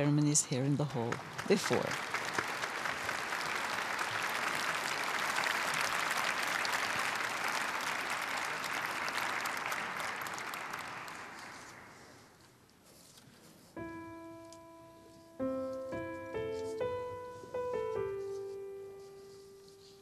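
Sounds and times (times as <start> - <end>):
audience applauding: 1.1 - 12.4.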